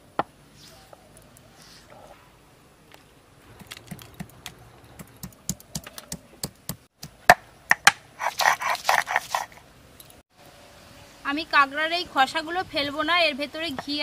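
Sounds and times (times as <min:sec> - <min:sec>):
stone pestle crushing on grinding stone: 0:03.5 - 0:09.6.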